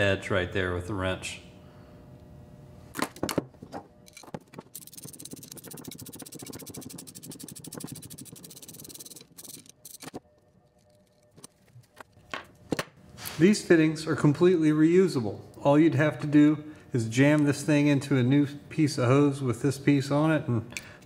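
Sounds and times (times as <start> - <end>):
ratcheting wrench clicking: 4.1 - 10.2.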